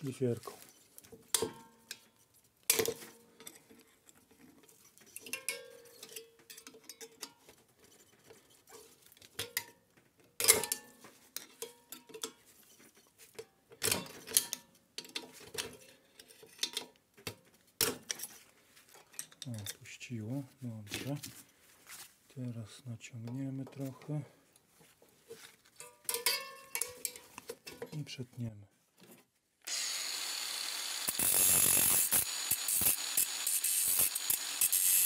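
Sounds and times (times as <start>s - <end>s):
metal clinks and knocks: 25.8s - 28.0s.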